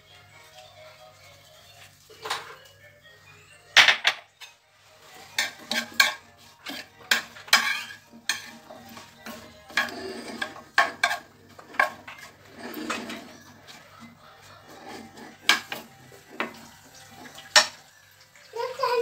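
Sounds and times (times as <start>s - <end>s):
utensil scraping frying pan: 4.3s - 18.4s.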